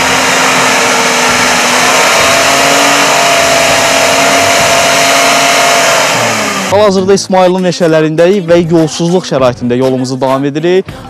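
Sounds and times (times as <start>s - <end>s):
engine at high revs: 0.0s - 6.9s.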